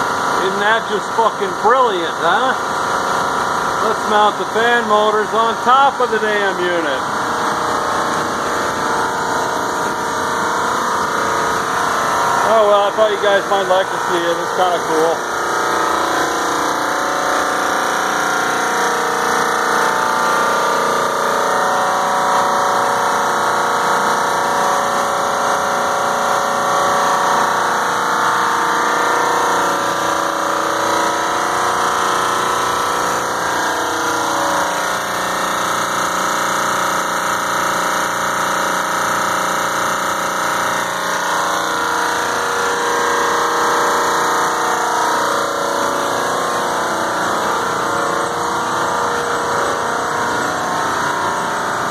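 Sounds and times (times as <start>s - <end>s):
air conditioning compressors droning: 0.0s - 51.9s.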